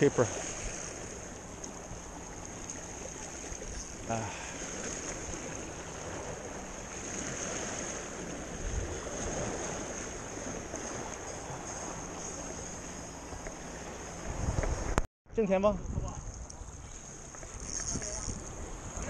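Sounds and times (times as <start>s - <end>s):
waves lapping against rocks: 0.0s - 15.0s.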